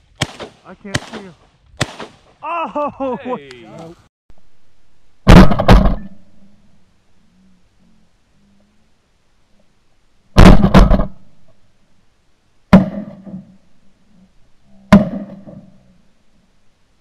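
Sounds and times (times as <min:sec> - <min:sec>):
shotgun shots with echo: 0:00.2 - 0:02.3, 0:05.3 - 0:06.2, 0:10.4 - 0:11.2, 0:14.9 - 0:15.5.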